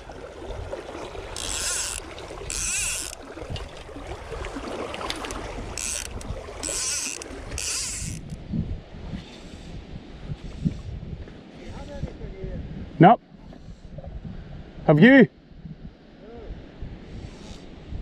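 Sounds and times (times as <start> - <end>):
river water lapping: 0.0 - 9.8
fly line swishing: 1.0 - 3.8.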